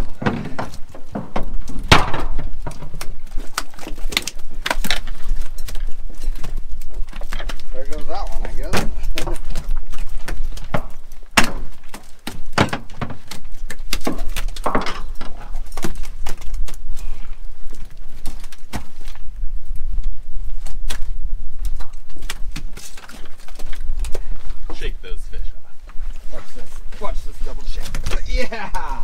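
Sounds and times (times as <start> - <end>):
knocks and clatter on boat deck: 0.0 - 3.0.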